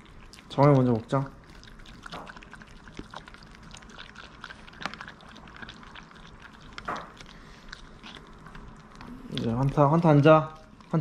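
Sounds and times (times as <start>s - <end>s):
dog licking: 0.0s - 11.0s.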